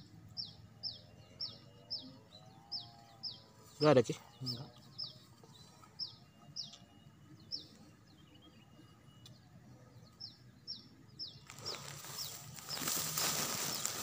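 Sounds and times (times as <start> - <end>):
small bird chirping: 4.3 - 14.0.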